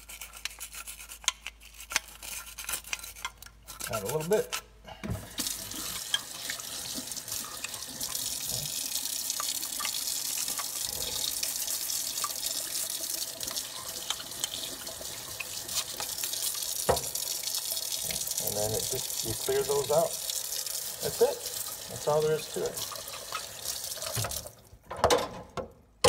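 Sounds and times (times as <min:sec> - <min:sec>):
tap running into steel sink: 0:16.8 - 0:17.2, 0:23.3 - 0:24.4.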